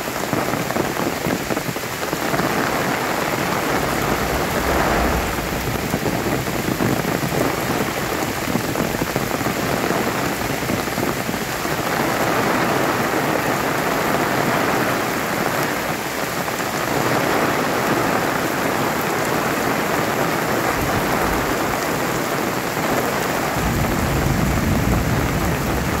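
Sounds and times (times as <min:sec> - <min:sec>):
heavy rain on foliage and road: 0:00.0 - 0:26.0
low rumble: 0:02.5 - 0:07.9.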